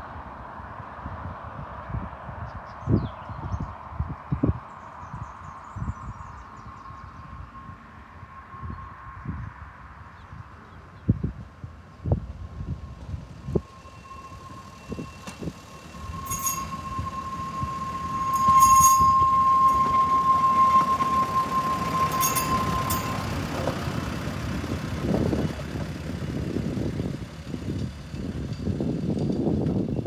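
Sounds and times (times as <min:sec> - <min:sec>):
truck rumbling on rail: 0:00.0 - 0:30.0
high wheel squeal: 0:05.1 - 0:10.6, 0:11.7 - 0:30.0.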